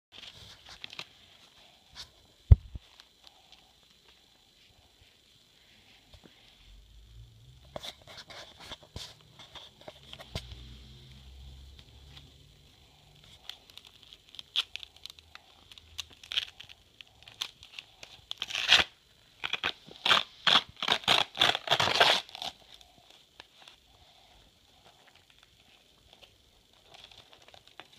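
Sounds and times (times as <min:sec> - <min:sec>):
paper crinkling and tearing: 0:13.2 - 0:22.8.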